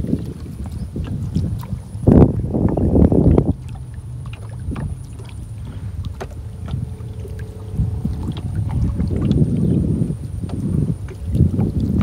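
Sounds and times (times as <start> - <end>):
paddle stroke: 0.0 - 12.0
water lapping at canoe hull: 0.0 - 12.0
wind rumble on microphone: 0.0 - 12.0.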